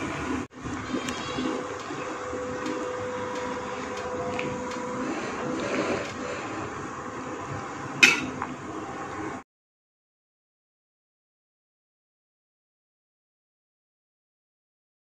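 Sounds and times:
water boiling in a pot: 0:00.0 - 0:09.4
spoon clanking against metal pot: 0:08.0 - 0:08.5.

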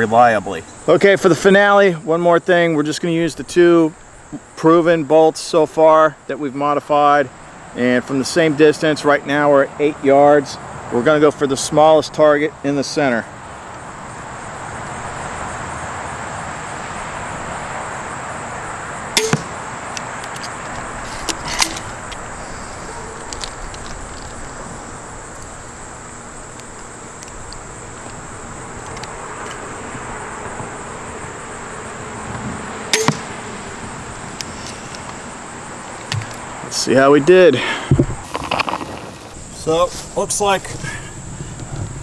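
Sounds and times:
bolt striking target: 0:19.2 - 0:19.6, 0:21.2 - 0:22.0, 0:32.9 - 0:33.4
crossbow string snap: 0:19.2 - 0:19.6, 0:33.0 - 0:33.3.

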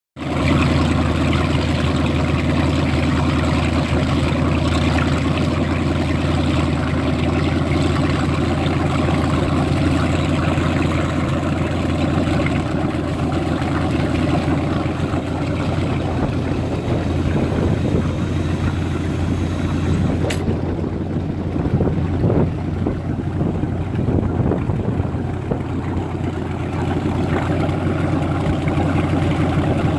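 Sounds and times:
boat engine idling: 0:00.2 - 0:29.9
jet drive churning water: 0:00.2 - 0:29.9
sharp click: 0:20.2 - 0:20.6.

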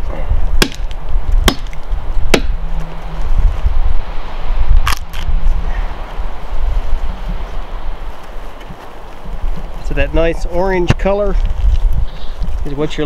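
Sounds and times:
axe chopping wood: 0:00.6 - 0:02.6.

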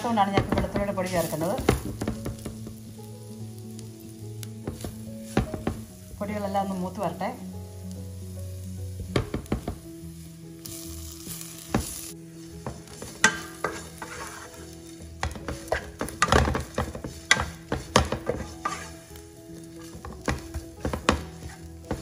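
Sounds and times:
wooden spatula scraping pan: 0:00.0 - 0:02.8, 0:11.7 - 0:22.0
food frying sizzle: 0:00.0 - 0:22.0.

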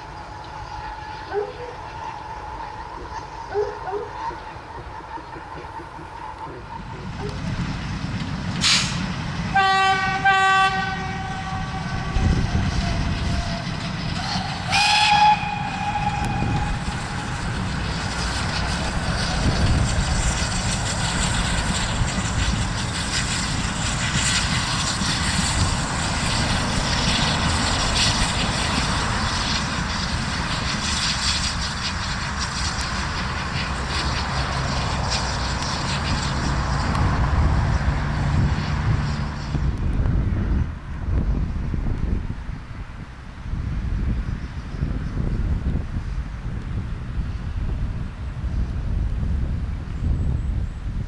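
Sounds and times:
locomotive working: 0:00.0 - 0:51.0
train running on rails: 0:00.0 - 0:51.0
steam whistle blasts: 0:09.5 - 0:17.3.

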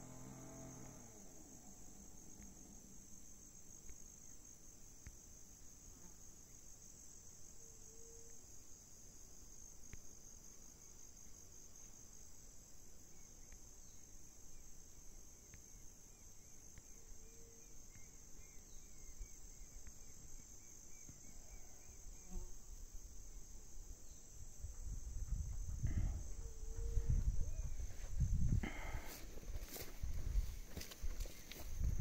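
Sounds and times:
insects singing: 0:13.0 - 0:32.0.

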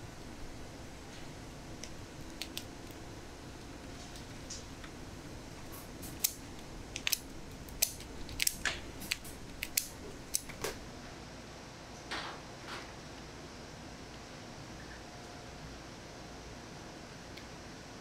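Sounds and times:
scissors snipping shell: 0:05.7 - 0:10.8.

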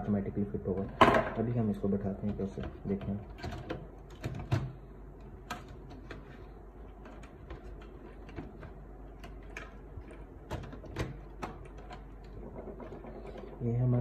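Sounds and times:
plastic and metal clicks and knocks: 0:02.2 - 0:06.3, 0:06.9 - 0:13.6.

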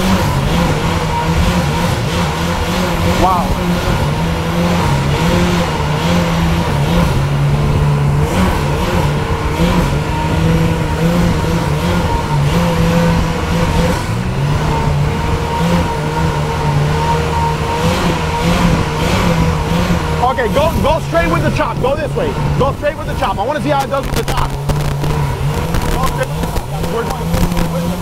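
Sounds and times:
boat engine running: 0:00.0 - 0:28.0
rush of wind and water: 0:17.5 - 0:28.0.

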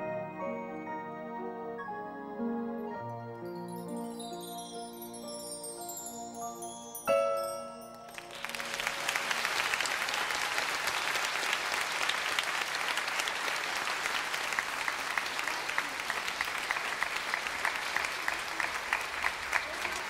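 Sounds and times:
studio audience applauding: 0:08.1 - 0:20.0.

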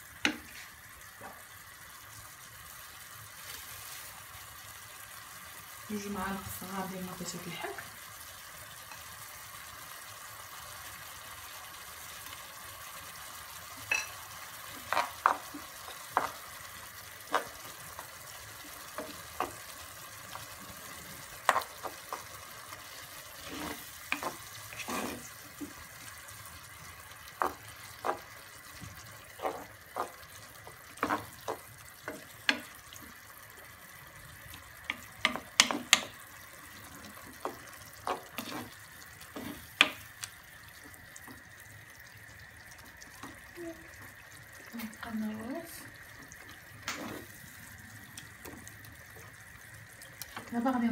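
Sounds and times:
low sizzle: 0:00.0 - 0:50.9
wooden spoon scraping a pan: 0:14.7 - 0:16.5, 0:17.2 - 0:20.6, 0:21.2 - 0:25.8, 0:27.3 - 0:32.7, 0:36.8 - 0:40.0, 0:46.8 - 0:47.5.

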